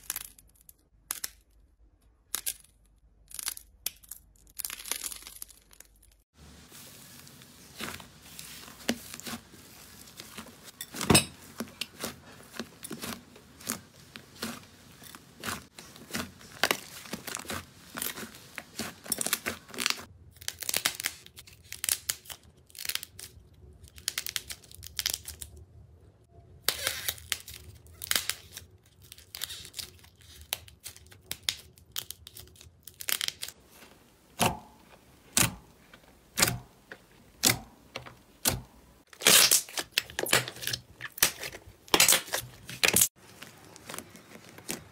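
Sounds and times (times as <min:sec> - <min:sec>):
slime crackling and popping: 0:11.5 - 0:25.6.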